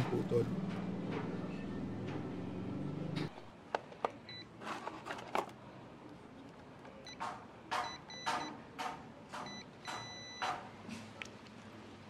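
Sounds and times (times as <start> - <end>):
multimeter continuity beep: 9.5 - 10.5.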